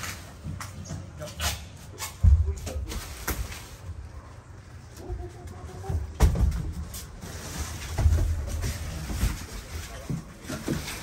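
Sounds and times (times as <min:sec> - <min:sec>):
plastic rustling: 0:02.6 - 0:05.1, 0:06.4 - 0:11.0.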